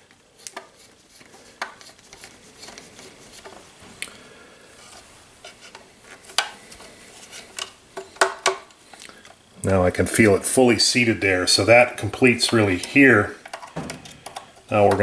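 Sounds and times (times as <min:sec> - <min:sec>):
small plastic parts clicking: 0:12.4 - 0:15.0.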